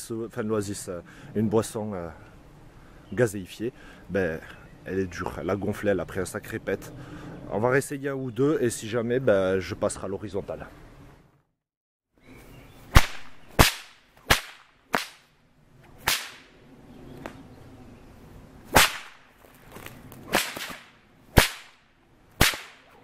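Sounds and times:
whip cracking: 12.9 - 15.3, 16.0 - 16.5, 18.7 - 23.0
whip swish: 12.9 - 15.3, 16.0 - 16.5, 18.7 - 19.2, 20.1 - 21.8, 22.4 - 23.0.

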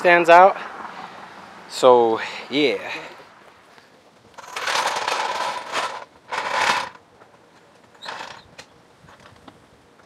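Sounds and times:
metal jack rattling and scraping: 4.3 - 9.3.

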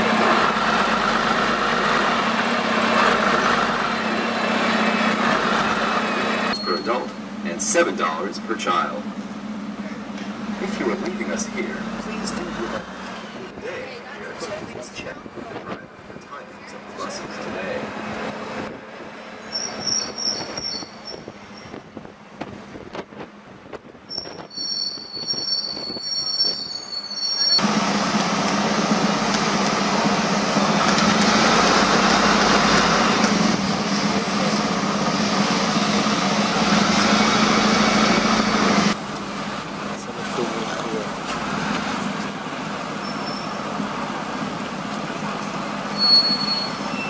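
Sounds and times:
engine and road noise rushing: 0.0 - 47.0
street noise: 0.0 - 47.0
high squealing tones: 6.0 - 7.5, 19.4 - 21.8, 24.1 - 27.6, 45.4 - 47.0.

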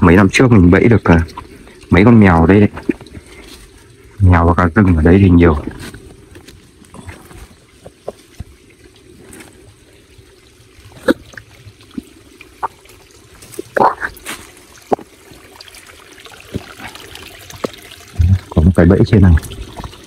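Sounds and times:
stream trickling over rocks: 0.0 - 20.0
footsteps on twigs and leaves: 13.4 - 15.2.

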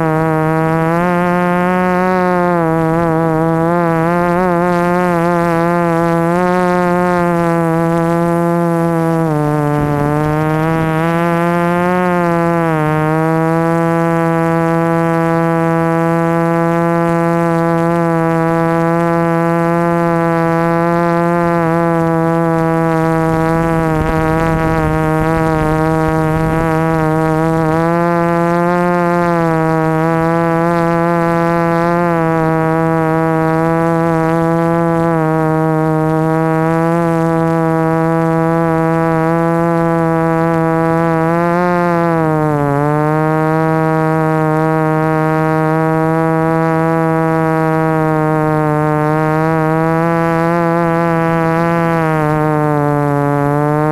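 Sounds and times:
drone propellers buzzing: 0.0 - 53.9
rush of air noise: 8.7 - 12.4, 22.9 - 28.4.

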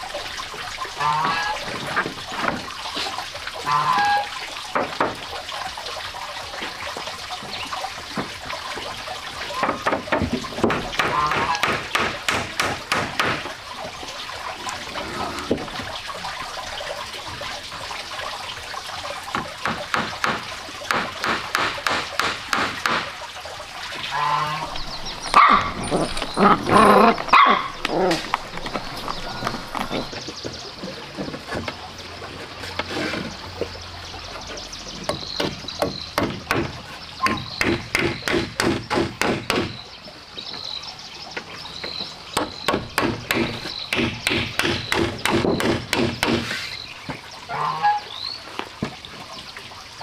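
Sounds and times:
wooden boards knocking: 9.6 - 13.5, 42.4 - 46.6
puppies yipping: 24.8 - 30.1.

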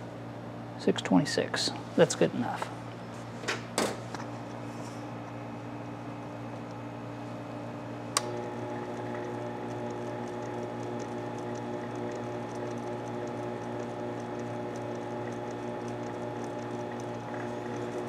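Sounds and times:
lathe switch click: 8.1 - 8.4
lathe motor humming: 8.2 - 18.0.

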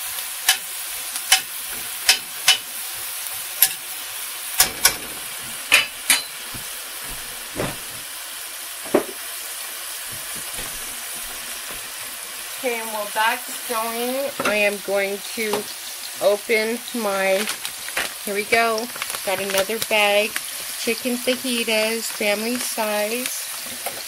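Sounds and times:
onion and garlic sizzling in oil: 0.0 - 24.0
metal spatula scraping pan: 4.6 - 7.5.

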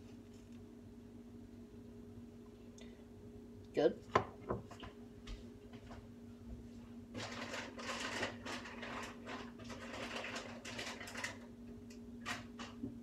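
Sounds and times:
low steady hum: 0.0 - 13.0
rustling of food packaging: 6.8 - 11.6.

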